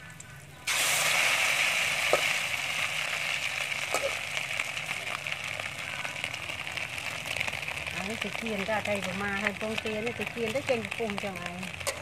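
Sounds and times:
hot oil sizzling in a wok: 0:00.6 - 0:12.0.

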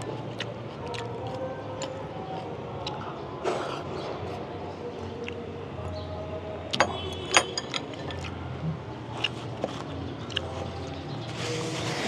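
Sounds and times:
tableware clinking: 0:06.8 - 0:08.3.

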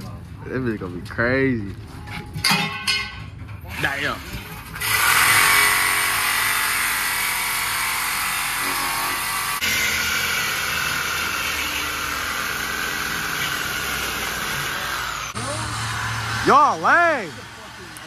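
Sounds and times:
reciprocating saw cutting metal pipe: 0:04.8 - 0:18.0.

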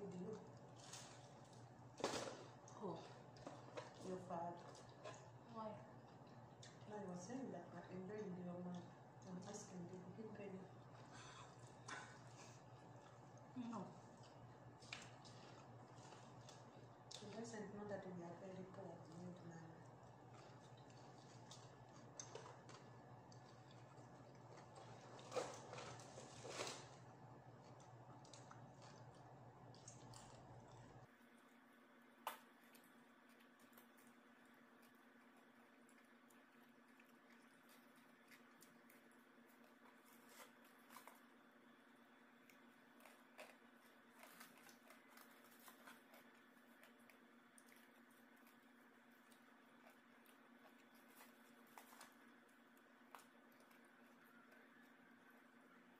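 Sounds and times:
low steady hum: 0:00.0 - 0:55.9
person chewing: 0:06.0 - 0:06.8, 0:10.8 - 0:17.4, 0:19.9 - 0:27.0, 0:27.6 - 0:31.1, 0:32.2 - 0:41.4, 0:42.4 - 0:55.1.

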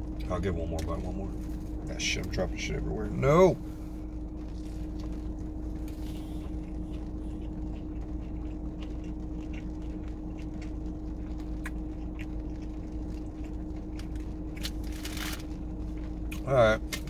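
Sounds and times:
car cabin hum: 0:00.0 - 0:09.0
constant tone: 0:00.0 - 0:17.0.

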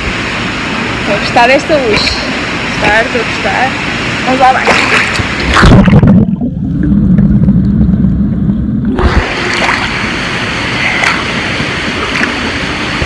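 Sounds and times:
pool water noise: 0:00.0 - 0:13.0
muffled underwater rumble: 0:02.6 - 0:13.0
splash into water: 0:04.6 - 0:06.2, 0:09.0 - 0:10.0.

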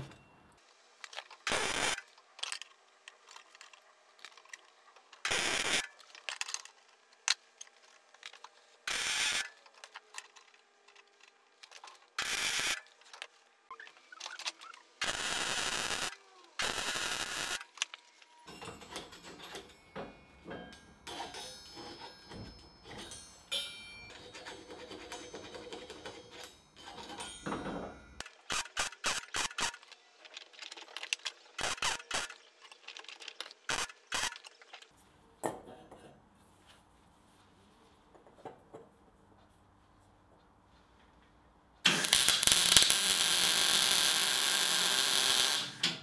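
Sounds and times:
welding arc crackling: 0:01.5 - 0:02.0, 0:15.0 - 0:17.7, 0:31.6 - 0:32.4, 0:41.8 - 0:46.0
steel parts clinking and scraping: 0:17.8 - 0:28.4.

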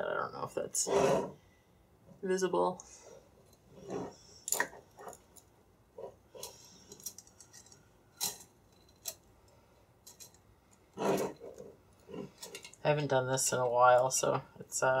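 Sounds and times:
handling sound: 0:03.4 - 0:12.8.

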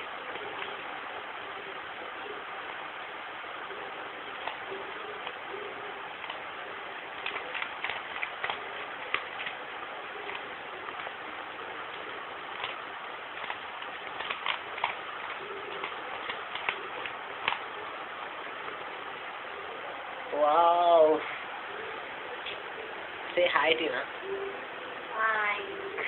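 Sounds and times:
background hiss: 0:00.0 - 0:26.0
puzzle cube clicking: 0:04.4 - 0:04.6, 0:07.2 - 0:09.6, 0:12.5 - 0:12.8, 0:13.4 - 0:17.7.

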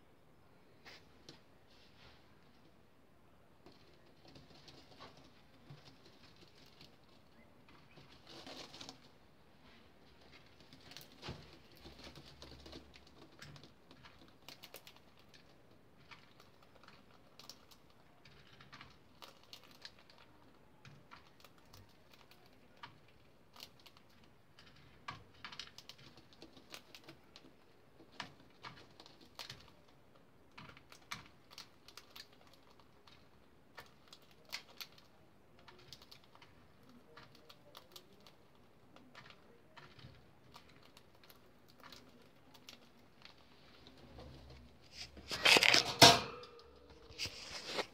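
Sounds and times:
beaks cracking seeds: 0:44.6 - 0:47.9.

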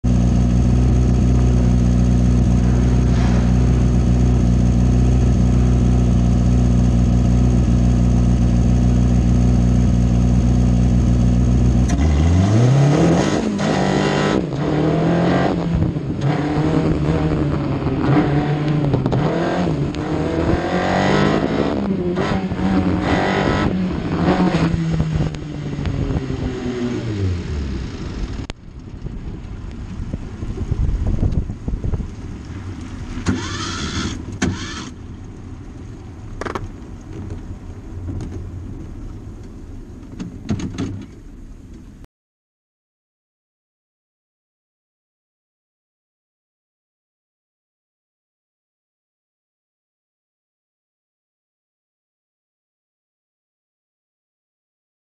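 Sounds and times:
race car engine idling and revving: 0:00.0 - 0:42.0.

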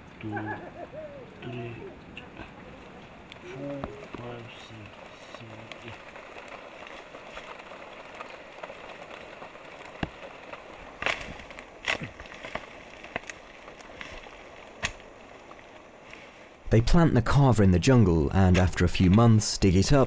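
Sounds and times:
foliage rustling: 0:00.0 - 0:16.8
steady background hiss: 0:00.0 - 0:20.0
stems and roots snapping: 0:03.2 - 0:16.3.

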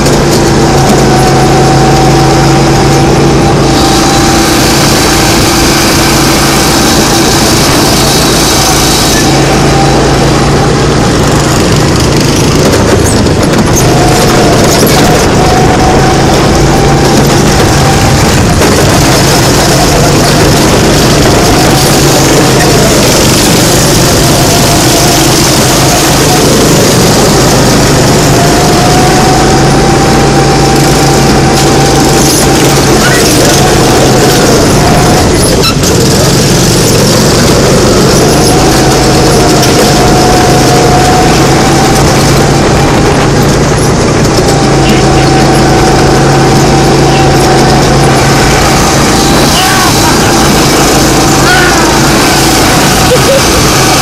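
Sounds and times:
go-kart engine at high revs: 0:00.0 - 0:54.0
heavy rushing noise: 0:00.0 - 0:54.0.

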